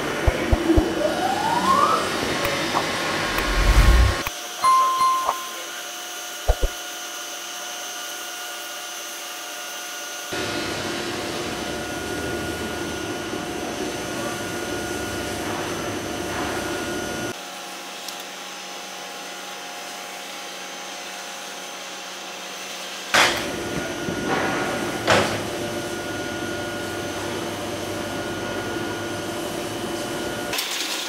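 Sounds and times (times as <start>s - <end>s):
machine hum with high whine: 0.0s - 5.9s.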